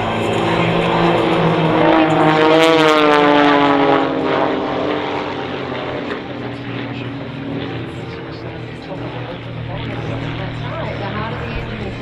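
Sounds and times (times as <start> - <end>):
propeller planes droning past: 0.0 - 12.0.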